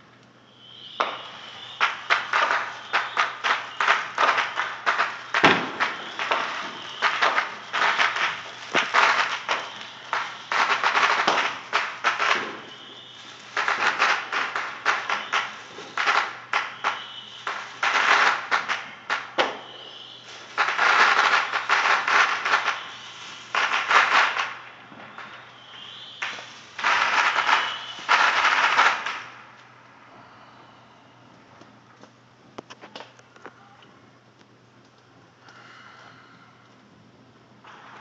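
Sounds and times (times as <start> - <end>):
faint high whistle: 0.0 - 29.3, 29.9 - 31.5, 33.5 - 34.0
firecrackers crackling pops: 0.0 - 29.8, 37.6 - 38.0.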